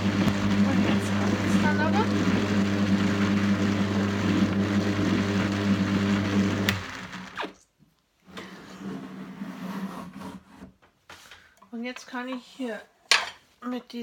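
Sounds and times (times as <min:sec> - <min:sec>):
drum carder motor hum: 0:00.0 - 0:07.3.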